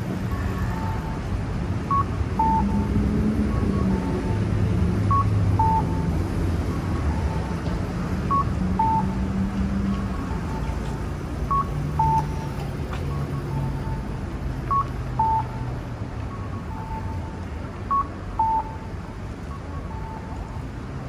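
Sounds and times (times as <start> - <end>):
low traffic rumble: 0.0 - 21.0
electronic cuckoo crossing signal: 1.9 - 6.1, 14.7 - 15.7, 16.4 - 20.4.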